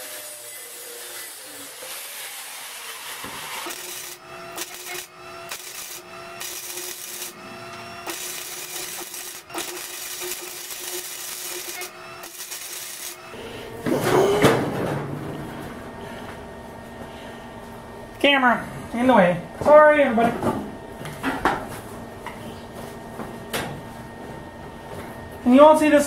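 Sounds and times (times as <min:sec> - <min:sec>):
abrasive cutting of steel: 0:00.0 - 0:13.4
welder crackling: 0:00.0 - 0:13.4.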